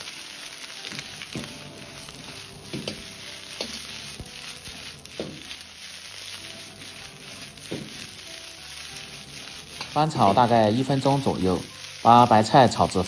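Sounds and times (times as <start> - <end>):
cabbage sizzling in a wok: 0.0 - 13.0
metal ladle scraping a wok: 0.8 - 13.0.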